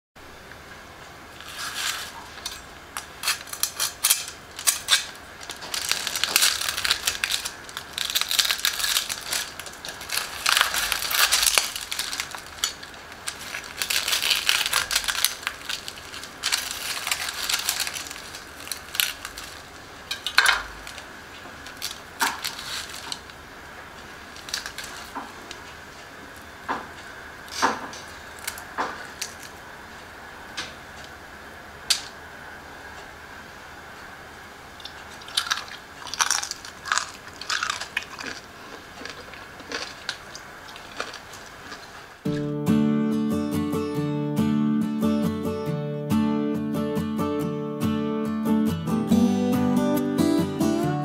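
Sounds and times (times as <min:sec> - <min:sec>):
crisp pork skin crackling: 0:01.4 - 0:23.4, 0:24.0 - 0:25.7, 0:27.5 - 0:29.6, 0:34.8 - 0:42.2.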